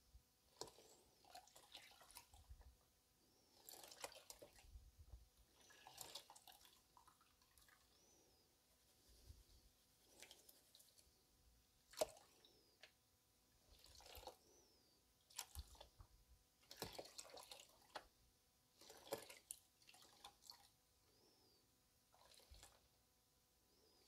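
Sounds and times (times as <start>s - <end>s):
water sloshing and splashing: 3.6s - 4.6s, 5.5s - 7.8s, 11.9s - 12.4s, 13.6s - 14.4s, 16.6s - 18.1s, 18.8s - 20.7s.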